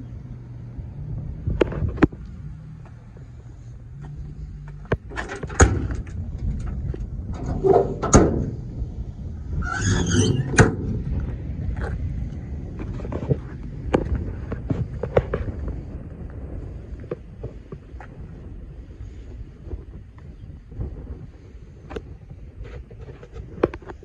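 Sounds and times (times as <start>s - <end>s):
scraping rustle: 3.6s - 8.6s.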